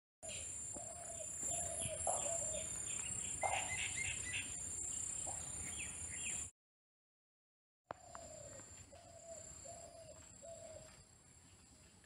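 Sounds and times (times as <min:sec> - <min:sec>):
lower bird calls: 0:00.2 - 0:06.5, 0:07.9 - 0:11.1
small bird chirping: 0:00.2 - 0:06.5
insects droning: 0:00.3 - 0:06.4, 0:07.9 - 0:12.0.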